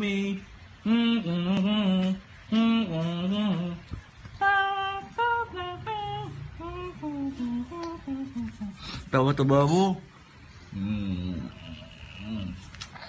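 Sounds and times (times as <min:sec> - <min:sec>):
person singing slow tune: 0:00.0 - 0:09.1, 0:10.7 - 0:13.0.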